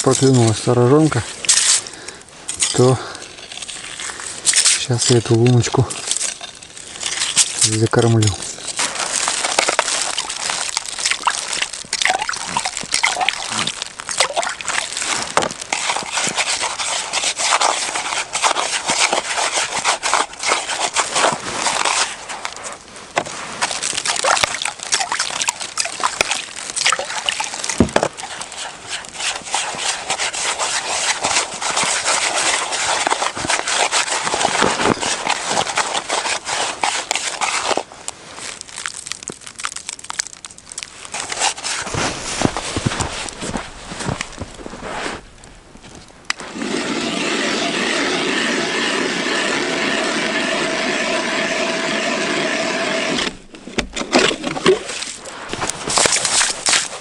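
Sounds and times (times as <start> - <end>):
skimmer sloshing slush and water: 8.7 - 22.1.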